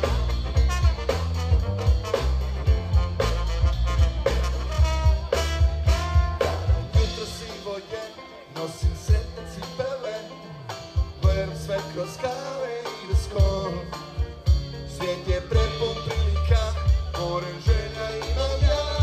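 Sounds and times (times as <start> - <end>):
swing jazz band playing: 0.0 - 19.0
person singing: 5.1 - 19.0.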